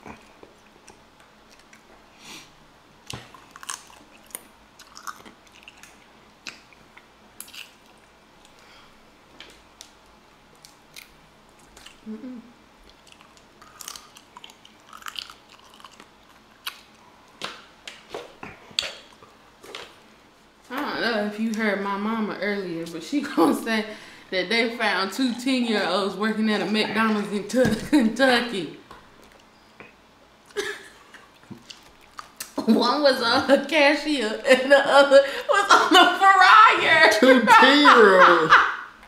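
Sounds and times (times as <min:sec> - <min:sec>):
chewing: 0:00.0 - 0:02.0, 0:03.0 - 0:08.6, 0:10.6 - 0:12.1, 0:12.8 - 0:17.0, 0:29.2 - 0:32.6.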